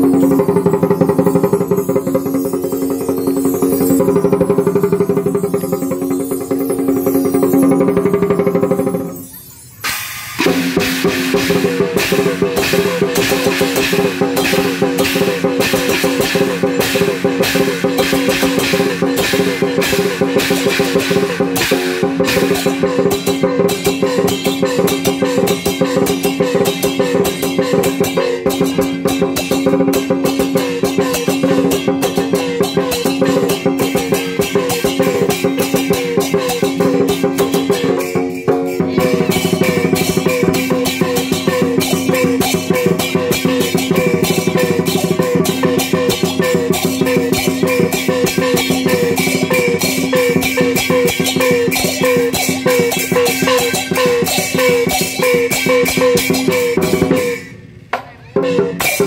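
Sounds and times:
hanging gongs ringing: 0:00.0 - 0:09.2, 0:09.8 - 0:57.5
hand cymbals clashing: 0:00.0 - 0:57.8, 0:58.4 - 0:59.0
barrel drum beaten rapidly: 0:10.4 - 0:57.4.

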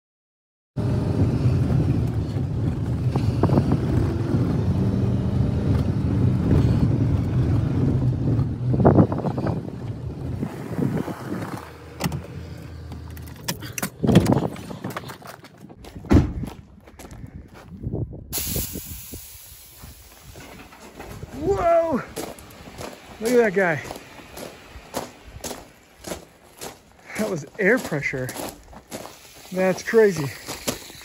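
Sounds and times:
truck engine and tyres rumbling: 0:00.8 - 0:31.0.

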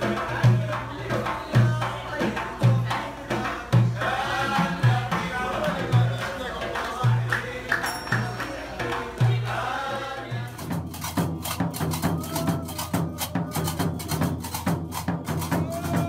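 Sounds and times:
chanted singing: 0:00.0 - 0:10.9, 0:15.4 - 0:16.0.

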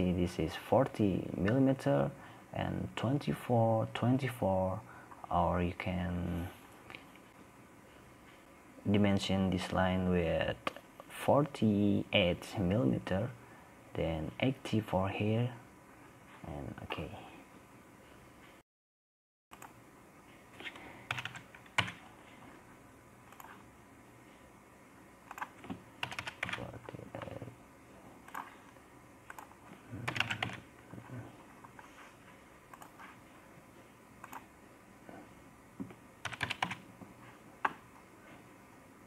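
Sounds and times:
computer keyboard typing: 0:21.1 - 0:22.0, 0:25.3 - 0:27.4, 0:29.3 - 0:30.7, 0:36.2 - 0:36.8.

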